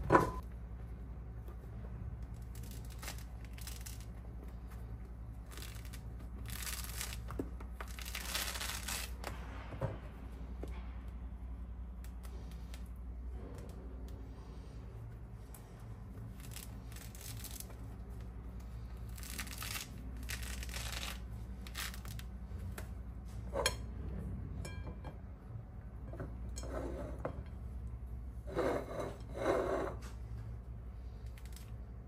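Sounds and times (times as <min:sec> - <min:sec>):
steady low hum: 0:00.0 - 0:32.0
objects rustling and scraping: 0:12.1 - 0:25.3, 0:26.0 - 0:32.0.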